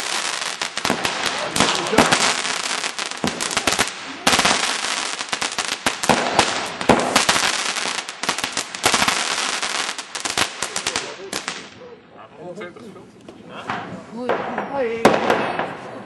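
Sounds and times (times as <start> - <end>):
loud firework bangs: 0.0 - 11.8, 13.7 - 16.0
fireworks crackling and banging: 0.0 - 12.0, 13.2 - 16.0.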